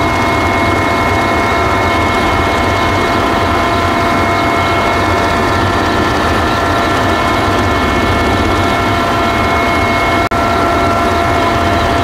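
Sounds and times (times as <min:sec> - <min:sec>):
helicopter engine and rotor drone: 0:00.0 - 0:12.0
high-pitched whines: 0:00.0 - 0:12.0.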